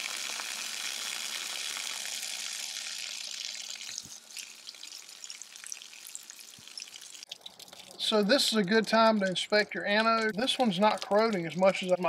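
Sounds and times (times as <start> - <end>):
water gushing from a drain: 0.0 - 9.2.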